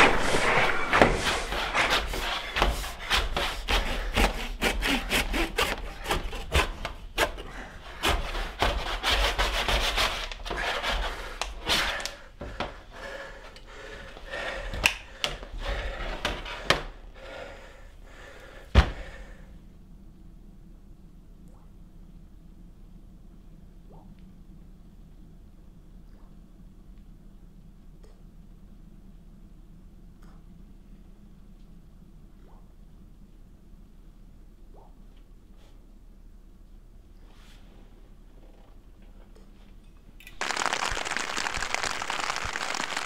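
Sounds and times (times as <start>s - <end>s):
scraping and rubbing strokes: 0.0s - 12.2s.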